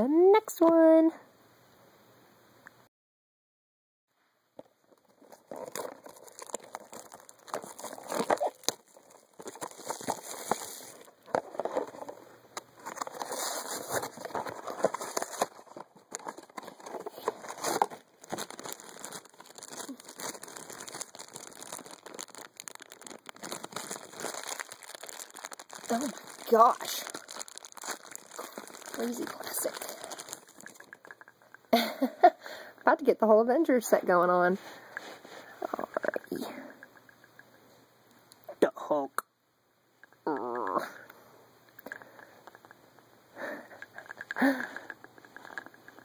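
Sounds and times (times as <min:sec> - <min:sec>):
plastic packaging being torn open: 0:05.0 - 0:12.1, 0:12.8 - 0:31.3.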